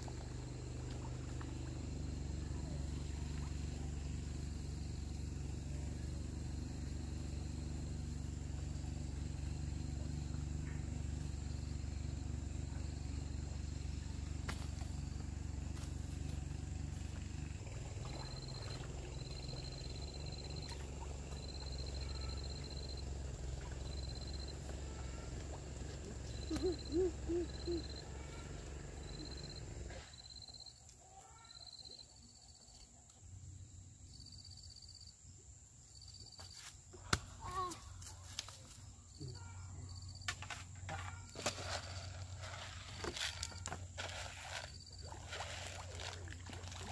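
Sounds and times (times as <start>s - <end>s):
low outdoor rumble: 0.0s - 30.4s
high insect trill: 0.0s - 32.6s, 33.4s - 46.9s.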